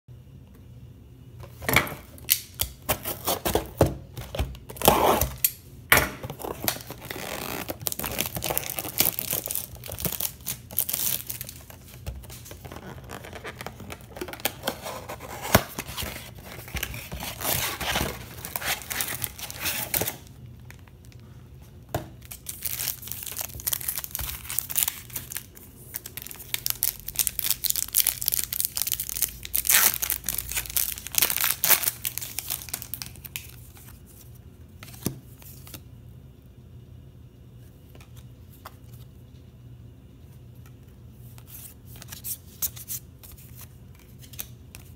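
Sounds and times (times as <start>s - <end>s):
card pack wrappers crinkling: 6.2s - 21.3s, 22.2s - 35.8s.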